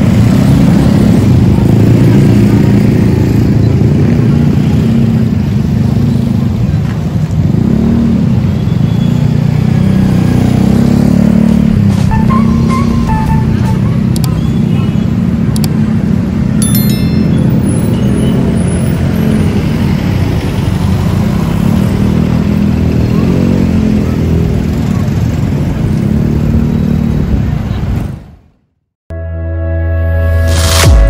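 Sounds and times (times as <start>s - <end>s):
cars driving past: 0.0s - 28.4s
motorcycle driving past: 7.4s - 13.4s
short chime: 16.6s - 18.6s.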